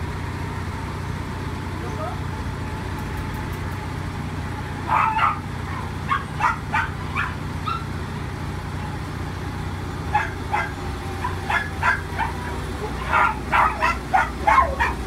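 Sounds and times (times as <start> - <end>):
low motor hum: 0.0 - 15.0
dog barking and yipping: 4.8 - 8.0, 10.1 - 15.0.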